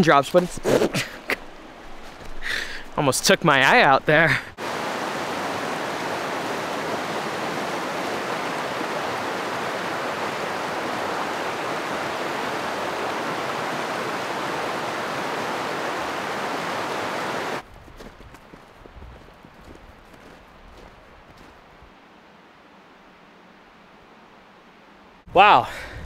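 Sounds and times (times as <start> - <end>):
rushing water: 0.0 - 17.7.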